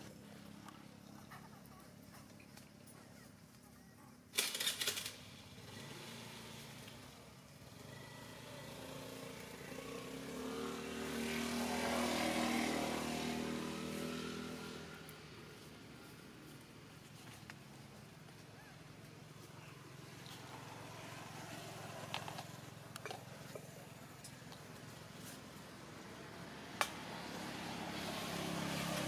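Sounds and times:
loud rattling burst: 0:04.4 - 0:05.4
vehicle engine passing by: 0:04.6 - 0:29.0.

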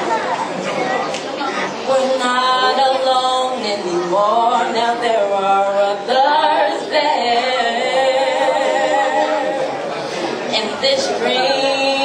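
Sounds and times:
women singing unaccompanied: 0:01.9 - 0:09.8, 0:10.5 - 0:12.0.

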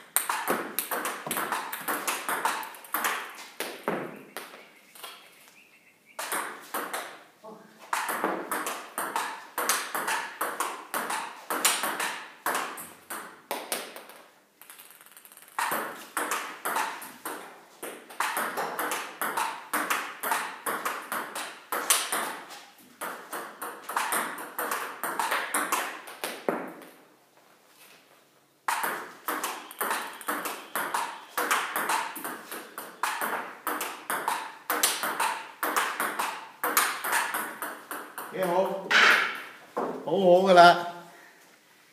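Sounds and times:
table tennis ball clicks: 0:14.0 - 0:17.0.

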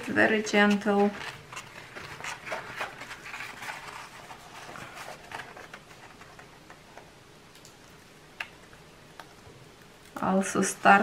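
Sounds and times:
paper rustling and crinkling: 0:00.0 - 0:06.9.

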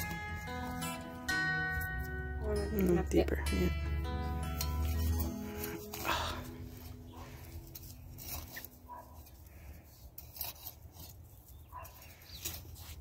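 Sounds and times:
hand trowel scraping soil: 0:04.3 - 0:13.0.

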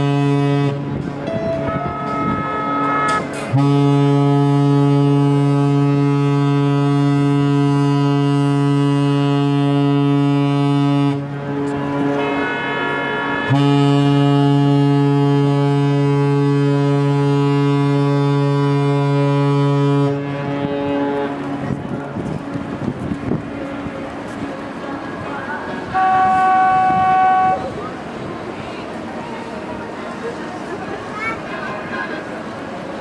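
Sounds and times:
ship horn blasts: 0:00.0 - 0:23.2, 0:25.5 - 0:28.2.

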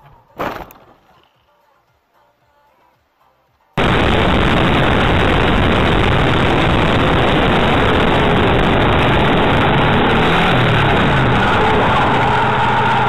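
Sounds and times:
motorcycle engine running: 0:03.8 - 0:13.0
wind and road noise: 0:03.8 - 0:13.0.

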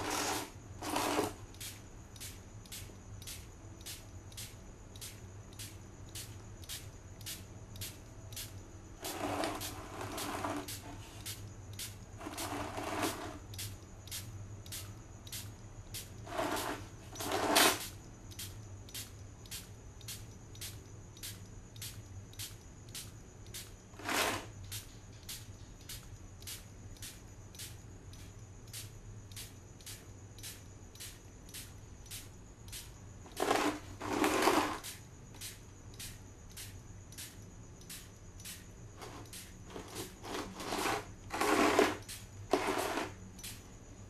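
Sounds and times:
steady low hum: 0:00.0 - 0:34.1
trigger sprayer spray hiss: 0:00.0 - 0:43.7.

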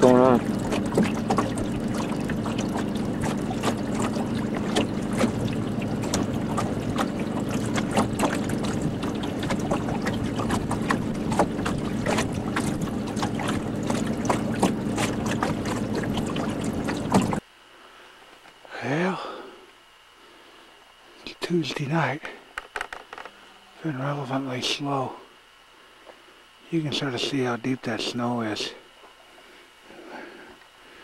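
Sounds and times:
boat motor running: 0:00.0 - 0:17.4
small clicks and knocks: 0:22.6 - 0:23.4.

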